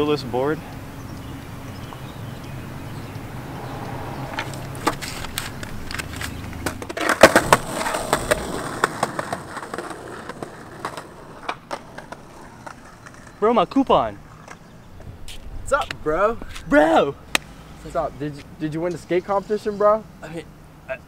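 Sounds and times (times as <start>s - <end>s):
skateboard wheels rolling on pavement: 0.0s - 19.0s
skateboard clacks: 4.8s - 13.4s.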